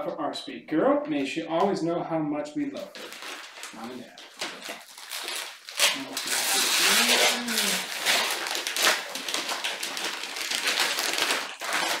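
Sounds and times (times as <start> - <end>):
tissue paper rustling: 2.8 - 12.0.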